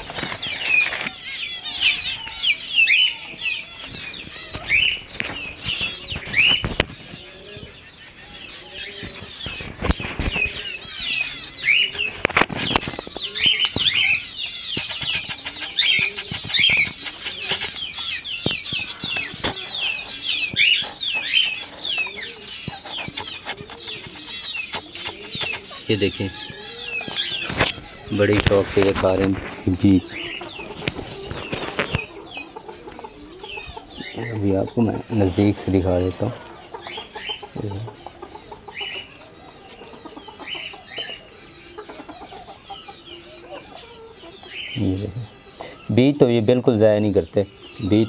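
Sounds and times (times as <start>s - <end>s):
parakeets chirping and squawking: 0.0s - 48.0s.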